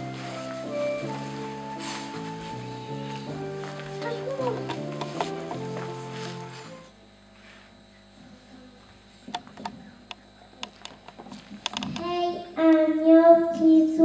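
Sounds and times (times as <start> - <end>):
music: 0.0 - 7.0
faint hum: 0.0 - 14.0
microphone handling clicks and knocks: 10.7 - 12.1.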